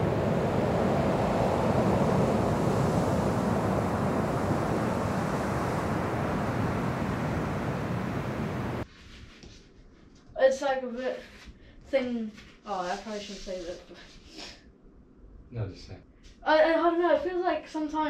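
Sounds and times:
ocean surf breaking: 0.0 - 8.8
wind on microphone: 0.0 - 8.8.

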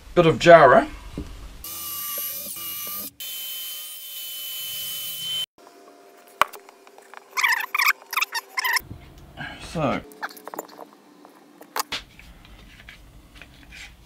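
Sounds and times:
mitre saw cutting wood: 1.6 - 5.5.

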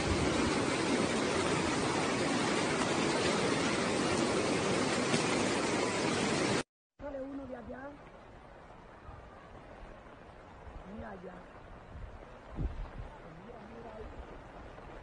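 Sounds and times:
water rushing: 0.0 - 15.0.

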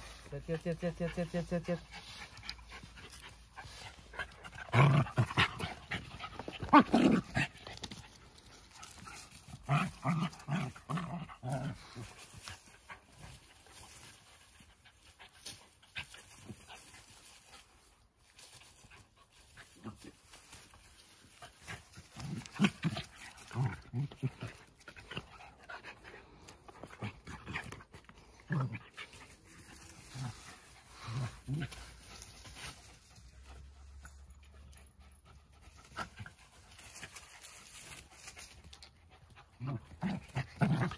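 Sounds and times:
dogs panting: 1.1 - 6.8, 24.2 - 40.0.

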